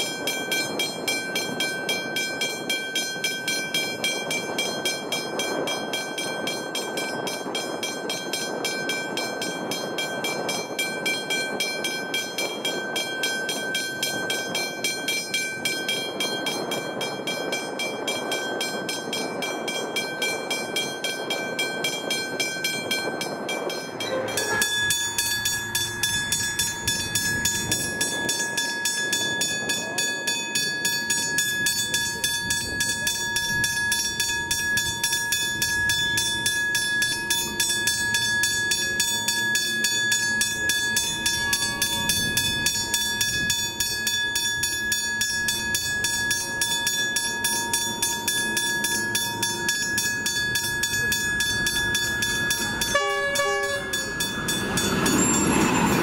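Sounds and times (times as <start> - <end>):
level crossing bell ringing: 23.6 - 56.0.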